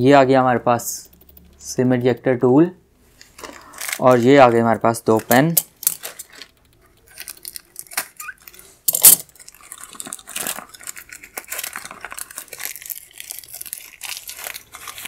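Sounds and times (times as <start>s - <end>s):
packing tape and cardboard crinkling: 3.2s - 15.0s.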